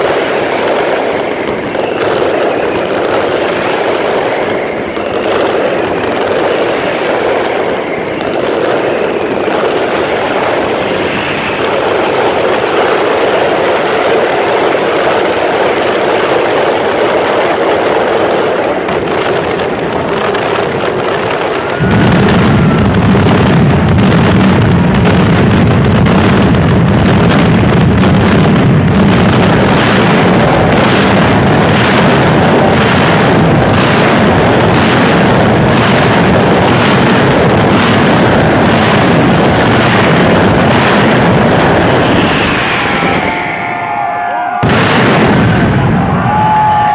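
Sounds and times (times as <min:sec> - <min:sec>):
fireworks bangs and crackling: 0:00.0 - 0:46.9
deep rumble: 0:21.8 - 0:43.8.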